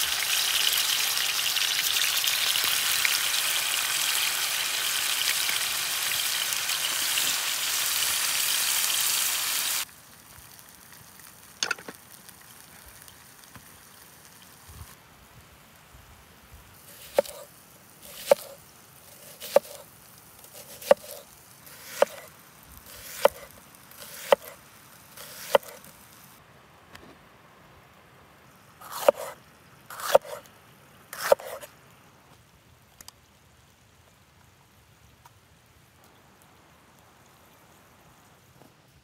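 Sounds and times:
knife cutting on wooden board: 17.0s - 17.5s, 18.1s - 18.6s, 19.2s - 19.8s, 20.6s - 21.2s, 21.8s - 22.3s, 22.9s - 24.6s, 25.2s - 25.9s, 28.8s - 30.4s, 31.2s - 31.7s.

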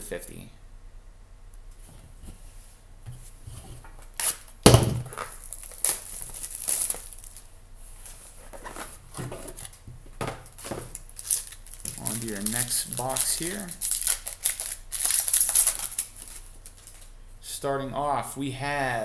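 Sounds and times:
foil pack crinkling: 4.0s - 17.1s
loud thump: 4.7s - 5.1s.

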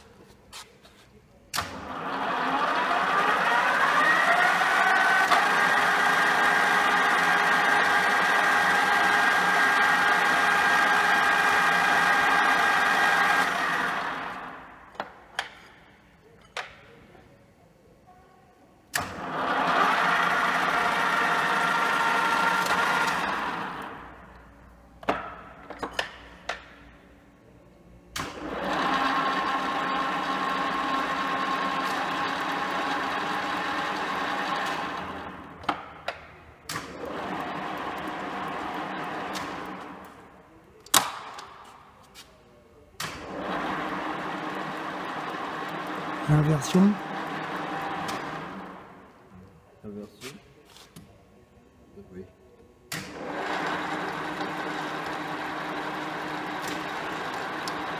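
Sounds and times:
milling machine running with a whine: 53.2s - 57.9s.

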